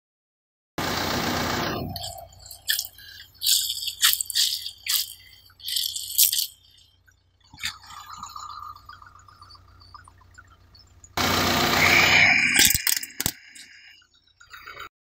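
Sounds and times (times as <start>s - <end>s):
stress ball crackling squishes: 2.4s - 6.8s.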